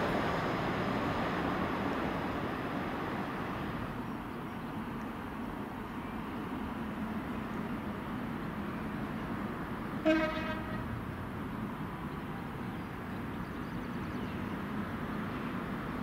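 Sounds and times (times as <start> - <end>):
train horn toot: 10.0 - 10.9.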